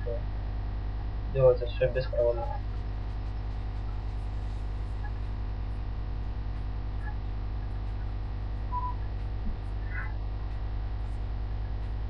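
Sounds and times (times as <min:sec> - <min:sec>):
electrical mains hum: 0:00.0 - 0:12.0
brief faint tone: 0:08.7 - 0:09.1.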